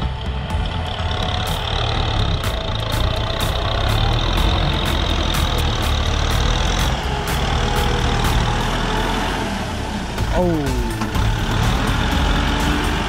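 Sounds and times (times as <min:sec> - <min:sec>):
diesel tractor engine running: 0:00.0 - 0:13.0.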